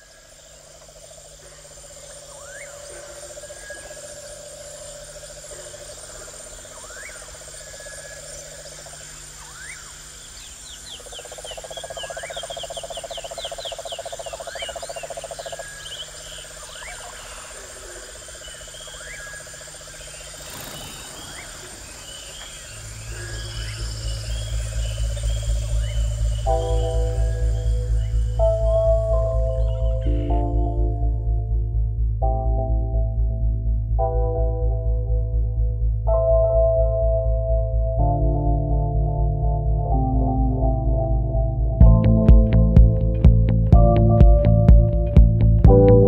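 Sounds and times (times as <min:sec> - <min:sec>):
high insect chirring: 0:00.0 - 0:30.7
frogs pulsing trill: 0:00.0 - 0:46.0
short rushing noise: 0:20.2 - 0:23.0
short rising call: 0:20.2 - 0:25.9.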